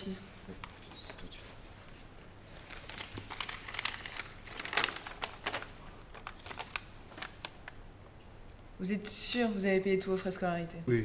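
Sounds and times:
paper rustling: 0:00.8 - 0:07.8.

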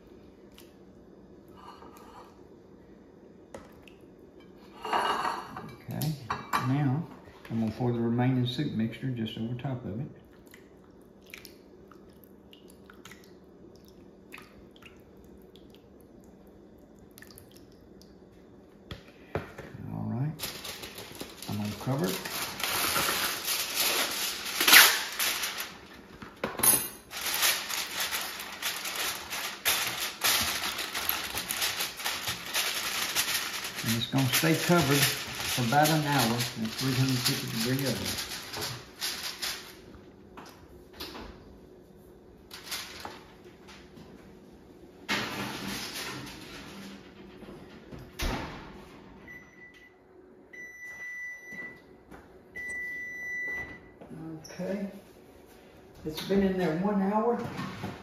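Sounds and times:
foil tearing: 0:20.4 - 0:26.0, 0:27.1 - 0:39.8
foil crinkling and rustling: 0:20.4 - 0:26.4, 0:27.0 - 0:39.8, 0:42.5 - 0:43.3.

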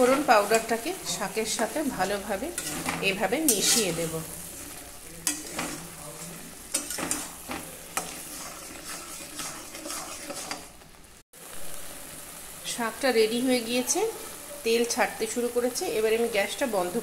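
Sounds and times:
greens sizzling in oil: 0:00.0 - 0:17.0
ladle scraping and knocking a pan: 0:02.0 - 0:10.8.

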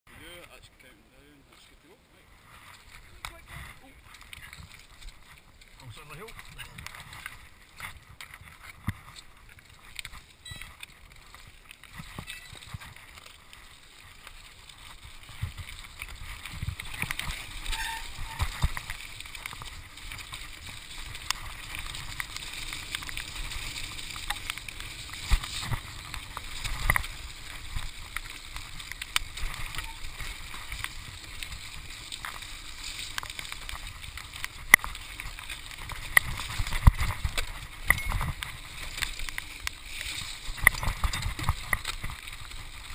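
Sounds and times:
bike tyres on gravel: 0:00.1 - 0:42.9
bike rattling over bumps: 0:02.4 - 0:42.9.

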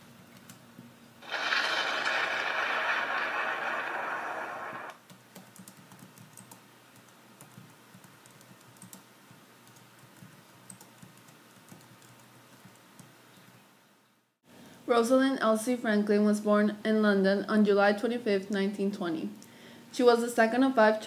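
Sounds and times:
loud steady noise: 0:01.2 - 0:04.9
typing on a laptop keyboard: 0:05.0 - 0:13.1.

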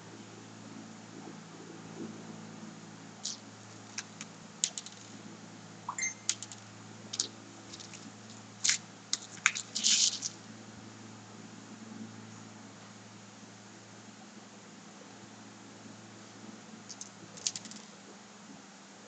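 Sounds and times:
steady low hum: 0:00.0 - 0:19.0
beads clicking: 0:05.9 - 0:10.4, 0:16.9 - 0:17.9.

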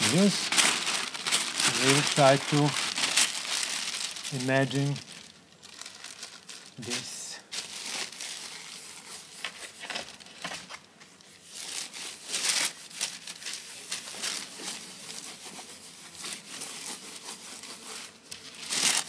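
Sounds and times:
paper crinkling and rustling: 0:00.0 - 0:19.0.

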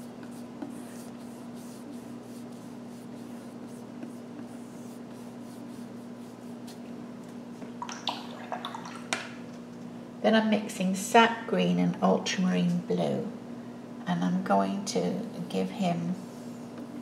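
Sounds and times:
paintbrush stroking canvas: 0:00.0 - 0:06.9
steady low hum: 0:00.0 - 0:17.0.

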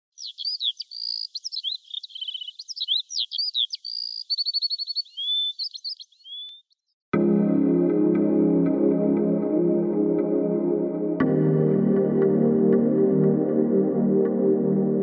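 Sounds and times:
songbird singing: 0:00.0 - 0:07.0.

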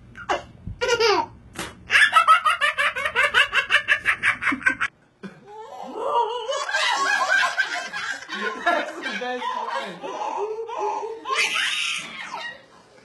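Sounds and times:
baby laughing: 0:00.2 - 0:04.9, 0:09.4 - 0:12.6
toddler laughing: 0:00.3 - 0:01.3.

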